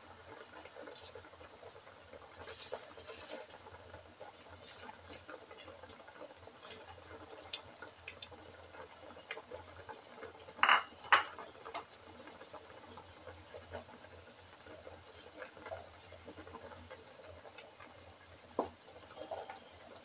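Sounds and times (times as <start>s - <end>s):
broth simmering in a wok: 0.0s - 20.0s
kitchenware clinks: 10.6s - 11.4s.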